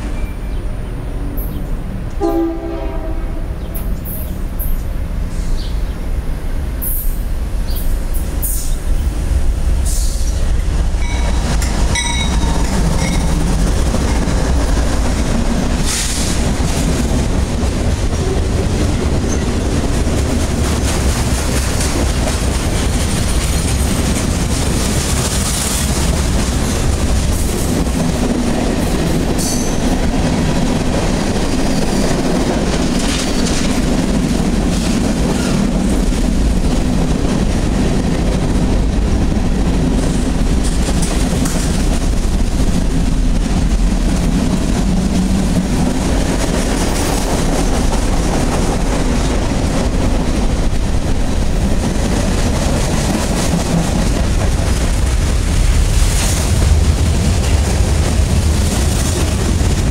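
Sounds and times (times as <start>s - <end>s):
diesel locomotive passing: 0.0s - 59.9s
freight cars rumbling: 2.9s - 59.9s
wheels clacking over rails: 10.2s - 55.5s.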